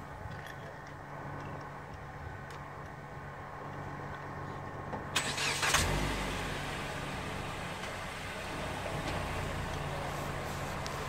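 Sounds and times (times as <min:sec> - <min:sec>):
vehicle engine running: 0:05.5 - 0:11.0.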